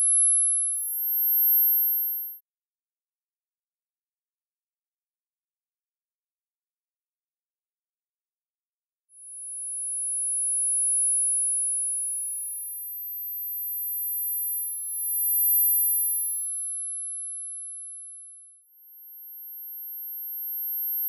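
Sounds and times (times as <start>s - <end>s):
high-pitched sine tones: 0.0s - 2.4s, 12.2s - 16.8s, 18.7s - 21.0s.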